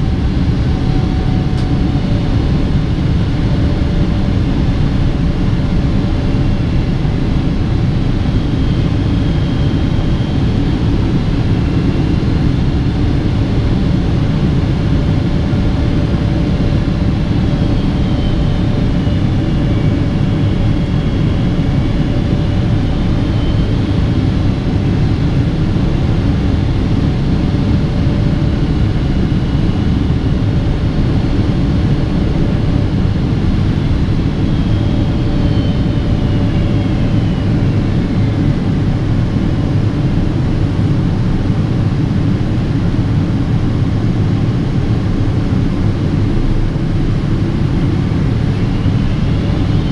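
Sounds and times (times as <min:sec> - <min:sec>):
airplane cabin engine rumble: 0:00.0 - 0:49.9
faint high whine: 0:00.0 - 0:49.9.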